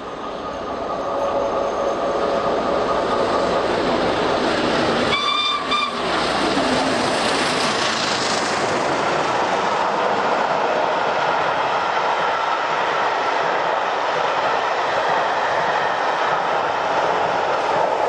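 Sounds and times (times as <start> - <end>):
steam train roaring past: 0.0 - 18.0
steam locomotive whistle: 5.1 - 6.0.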